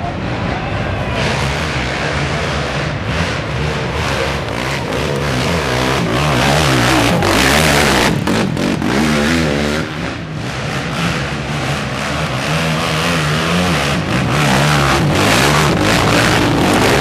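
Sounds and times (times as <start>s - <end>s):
quad engines revving: 0.0s - 17.0s.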